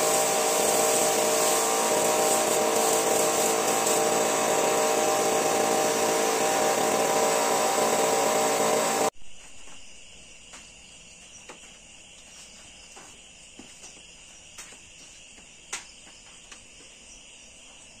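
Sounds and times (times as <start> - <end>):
crickets chirring: 9.2 - 18.0.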